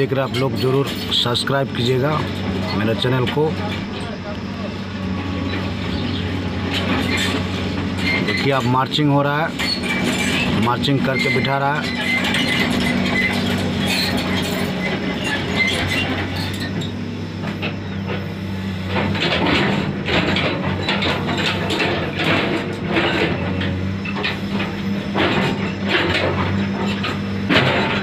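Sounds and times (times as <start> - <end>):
excavator diesel engine running: 0.0 - 28.0
bucket clanking and crunching rock: 6.8 - 16.8.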